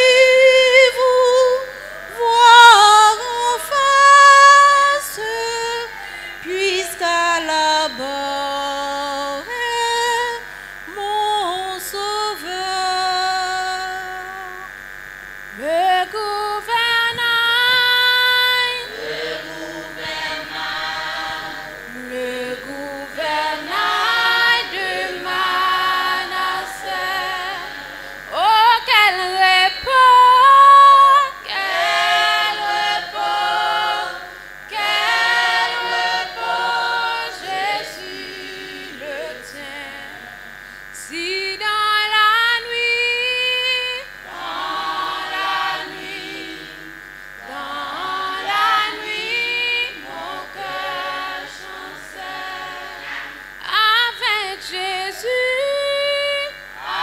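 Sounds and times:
choir singing: 0:17.8 - 0:40.6, 0:44.2 - 0:53.8, 0:56.8 - 0:57.0.

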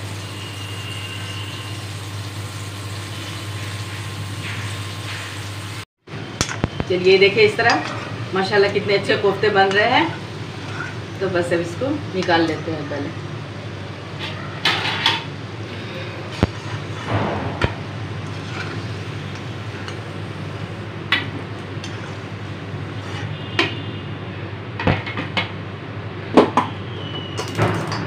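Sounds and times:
frying oil sizzling: 0:00.0 - 0:05.9, 0:16.3 - 0:24.0
spatula scraping iron pan: 0:10.6 - 0:11.0, 0:16.3 - 0:17.1, 0:18.2 - 0:20.0, 0:23.0 - 0:23.6.

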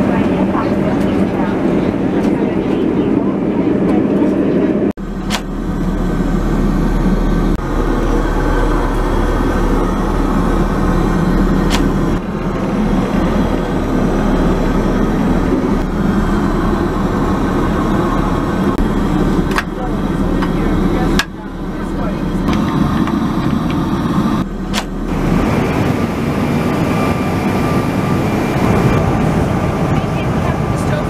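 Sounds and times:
airliner cabin roar: 0:00.0 - 0:31.0.

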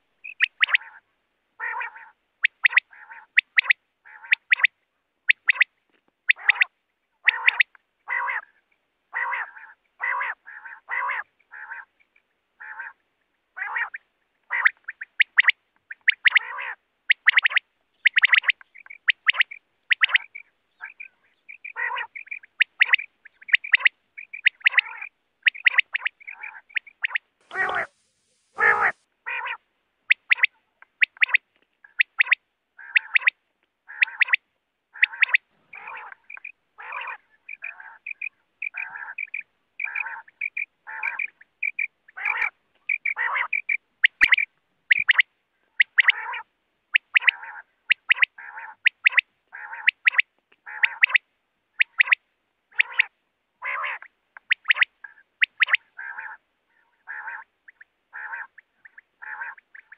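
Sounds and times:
quail calling: 0:00.0 - 0:05.7, 0:06.3 - 0:12.0, 0:12.6 - 0:13.0, 0:13.6 - 0:59.9.

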